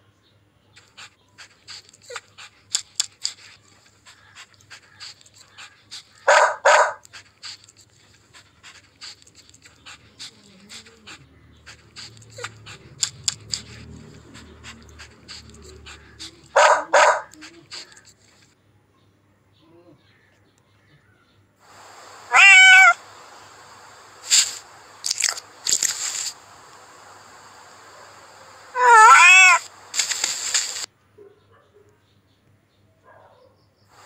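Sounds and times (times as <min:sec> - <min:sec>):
dog panting: 0:00.8 - 0:18.5
dog barking: 0:04.2 - 0:07.1, 0:10.2 - 0:18.0, 0:22.2 - 0:23.0, 0:27.9 - 0:30.2, 0:30.8 - 0:32.0, 0:33.0 - 0:33.6.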